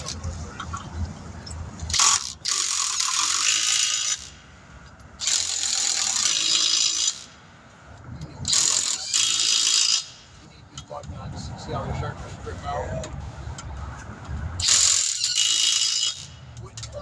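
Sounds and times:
pneumatic impact wrench rattling: 0:01.8 - 0:04.5, 0:05.2 - 0:07.5, 0:08.4 - 0:10.3, 0:14.6 - 0:17.0.

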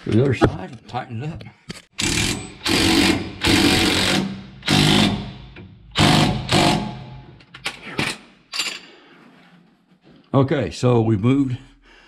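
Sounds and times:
impact wrench hammering bolts: 0:02.0 - 0:08.9.

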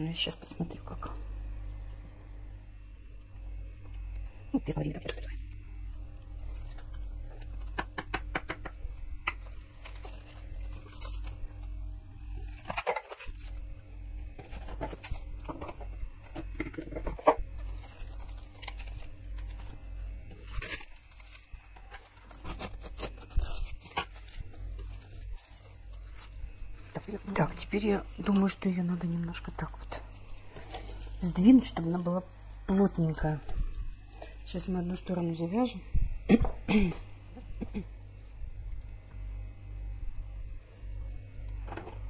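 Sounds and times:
steady low hum: 0:00.0 - 0:42.0
cling film crinkling: 0:03.9 - 0:35.2.

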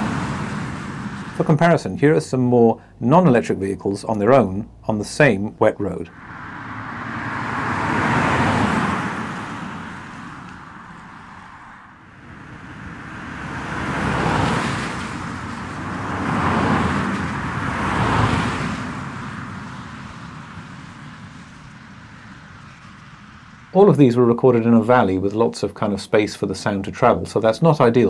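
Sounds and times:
vehicles passing on wet road: 0:00.0 - 0:02.0, 0:05.8 - 0:25.2.

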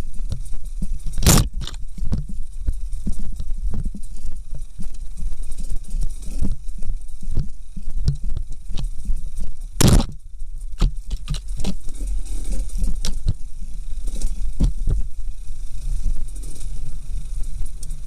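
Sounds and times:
dirt bike engine at low revs: 0:00.0 - 0:18.0
knocks and rattles over stones: 0:00.1 - 0:15.2
loud scrape: 0:01.1 - 0:01.9.

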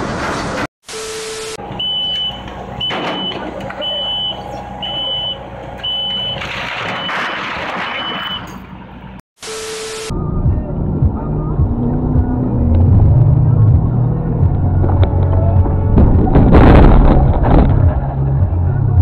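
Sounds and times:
back-up alarm beeping: 0:00.9 - 0:08.6
diesel engine running: 0:01.6 - 0:07.0, 0:10.1 - 0:19.0
static noise: 0:09.4 - 0:10.1.

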